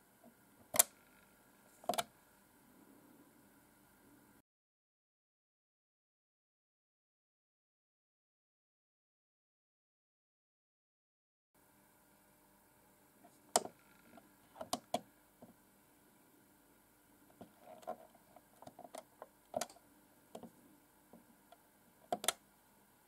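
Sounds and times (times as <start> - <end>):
plastic push buttons clicking: 22.1 - 22.4.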